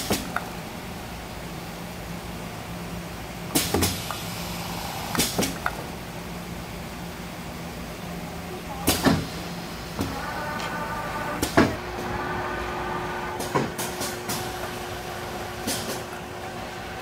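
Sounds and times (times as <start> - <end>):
steady machine hum: 0.0 - 17.0
steady whining tone: 8.4 - 17.0
machine clacks and clunks: 8.8 - 17.0.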